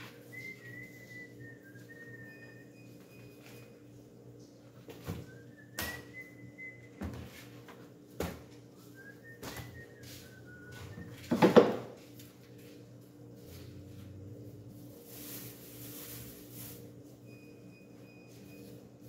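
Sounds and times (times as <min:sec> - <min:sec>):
person whistling a slow tune: 0:00.0 - 0:03.7, 0:05.2 - 0:07.2, 0:08.7 - 0:11.3.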